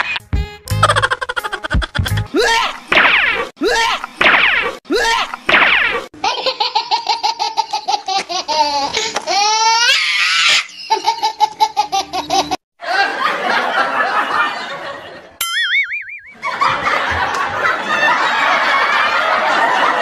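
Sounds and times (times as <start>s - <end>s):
rapid pulsing laugh: 0.8s - 2.2s
group of people laughing: 10.7s - 15.4s, 16.4s - 20.0s
short warbling tone: 15.4s - 16.4s.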